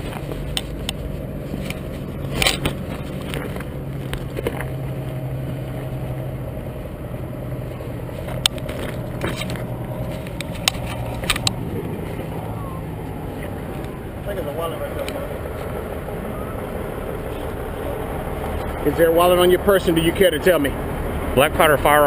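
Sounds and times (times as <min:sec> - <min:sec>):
clothing rustling: 0:00.0 - 0:06.0, 0:07.7 - 0:13.9
vehicle engine idling: 0:00.0 - 0:22.0
knocks and clicks: 0:08.2 - 0:12.0.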